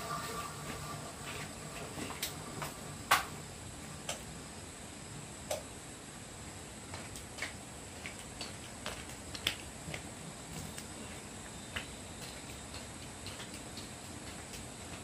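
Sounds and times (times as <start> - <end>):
steady background hiss: 0.0 - 15.0
light clicks and taps: 11.7 - 15.0.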